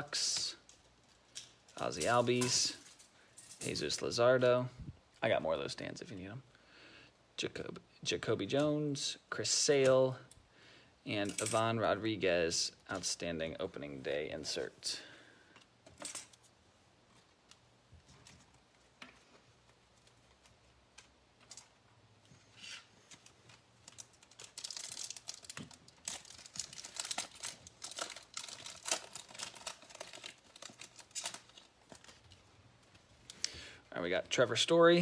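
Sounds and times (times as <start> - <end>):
wrapper crinkling: 22.8 - 33.4.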